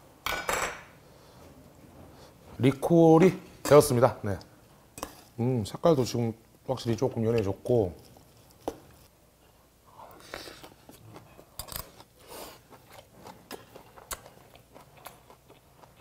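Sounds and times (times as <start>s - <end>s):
close-up chewing with crunches: 10.6s - 16.0s.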